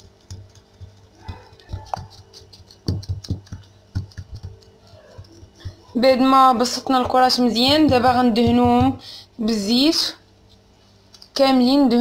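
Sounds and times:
soft thumps patting dough: 0.0s - 9.1s
faint background music: 0.0s - 12.0s.

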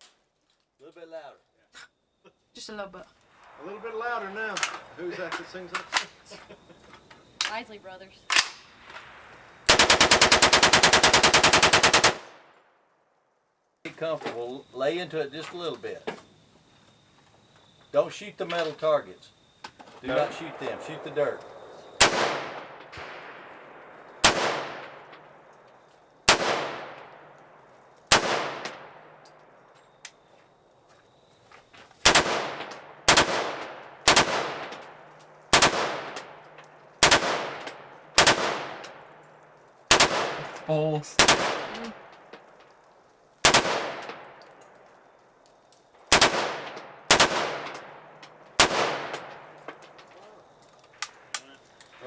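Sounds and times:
rifle shots with echo: 8.3s - 12.6s, 20.1s - 25.5s, 26.2s - 27.5s, 28.1s - 29.2s, 32.0s - 36.4s, 37.0s - 39.1s, 39.9s - 40.6s, 41.2s - 42.3s, 43.4s - 44.4s, 46.1s - 49.7s.

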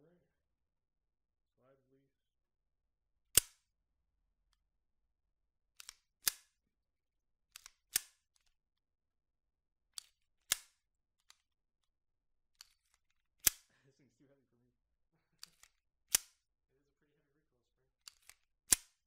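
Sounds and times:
slide racking click: 3.4s - 3.6s, 5.8s - 6.5s, 7.6s - 8.5s, 10.0s - 11.4s, 18.1s - 19.0s
pistol slide clacking shut: 3.4s - 3.7s, 5.8s - 6.6s, 7.5s - 8.5s, 10.0s - 11.5s, 12.6s - 13.7s, 15.4s - 16.4s, 18.1s - 19.0s.

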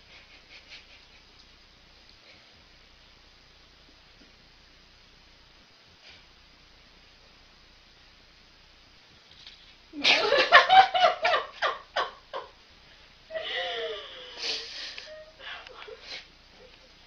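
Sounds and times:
person laughing hard: 10.0s - 12.5s.

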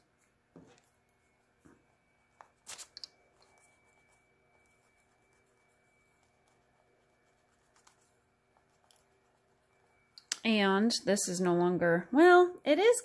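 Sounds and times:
pencil on paper: 1.6s - 9.7s.

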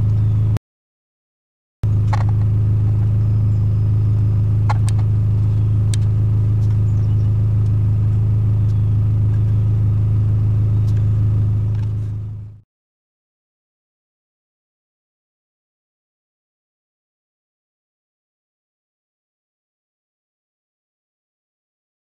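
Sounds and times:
low droning hum: 0.0s - 0.6s, 1.8s - 12.6s.

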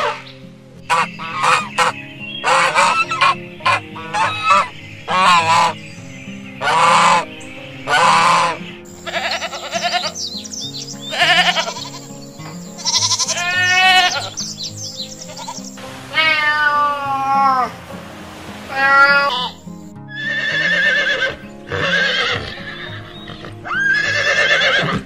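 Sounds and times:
geese honking: 0.0s - 17.9s, 18.6s - 24.9s
sheep bleating: 7.9s - 10.2s, 11.0s - 14.5s, 15.3s - 17.7s, 18.7s - 25.0s.

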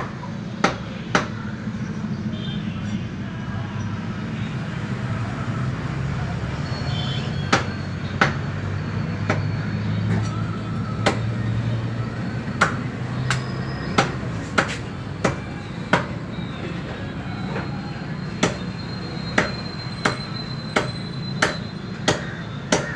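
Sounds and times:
cleaver chopping on wood block: 0.0s - 1.4s, 7.5s - 8.4s, 11.0s - 11.3s, 12.6s - 13.4s, 14.0s - 16.2s, 18.4s - 18.7s, 19.4s - 22.9s.

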